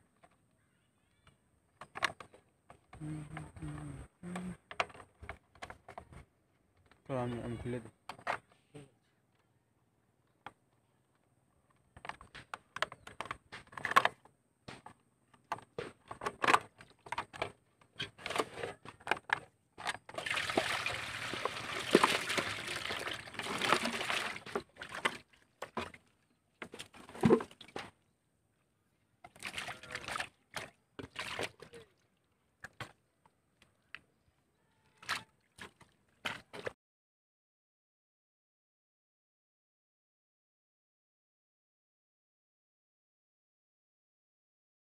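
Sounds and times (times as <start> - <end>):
water splashing into a metal basin: 20.1 - 25.9, 29.3 - 31.9.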